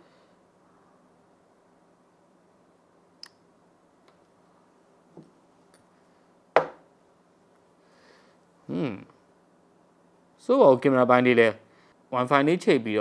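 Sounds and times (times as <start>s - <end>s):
faint steady hum: 0.0s - 13.0s
sharp loud knock: 6.6s - 6.8s.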